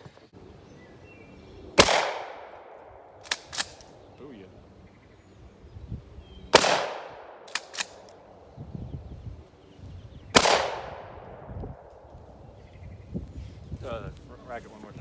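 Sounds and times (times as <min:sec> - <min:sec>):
shotgun shots echoing: 0:01.8 - 0:03.9, 0:06.5 - 0:08.1, 0:10.3 - 0:11.5
shotgun pump clacks: 0:07.5 - 0:08.1.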